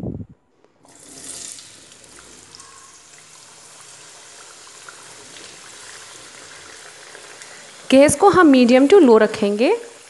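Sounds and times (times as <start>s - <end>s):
potatoes sizzling in hot oil: 2.6s - 10.0s.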